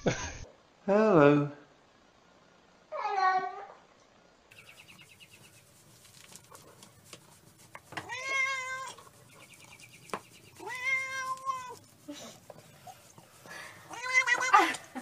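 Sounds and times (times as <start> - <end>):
cat meowing: 8.0 - 9.1, 10.6 - 11.8, 13.8 - 14.8.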